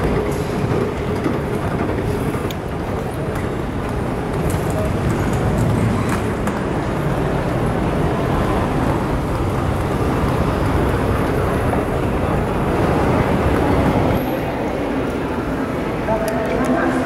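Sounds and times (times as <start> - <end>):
hall noise: 0.0 - 17.0
moving walkway rumbling: 0.0 - 17.0.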